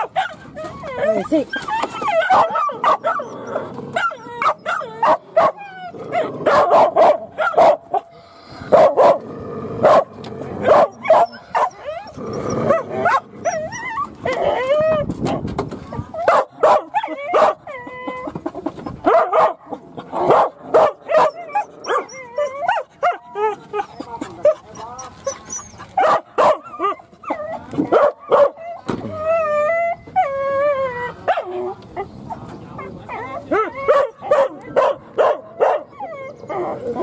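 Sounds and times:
dogs barking yipping and whining: 0:00.0 - 0:08.1, 0:08.7 - 0:09.2, 0:09.8 - 0:15.1, 0:15.9 - 0:37.0.

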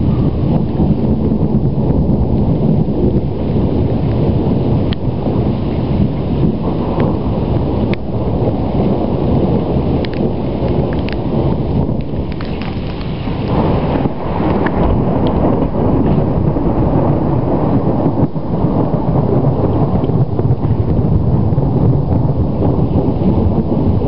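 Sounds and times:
low rumbling thunder: 0:00.0 - 0:24.0
faint sharp clicks: 0:10.0 - 0:10.2, 0:10.9 - 0:11.2.

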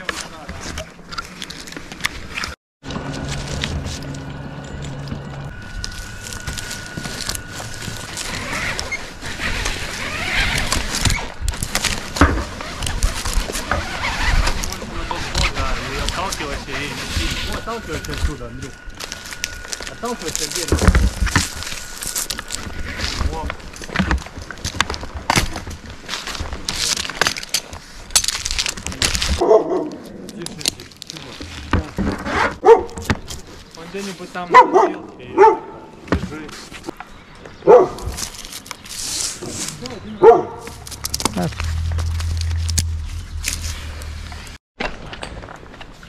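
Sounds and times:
gear scraping on bark: 0:00.0 - 0:35.6, 0:37.7 - 0:46.0
low rumbling bumps: 0:39.5 - 0:44.6.

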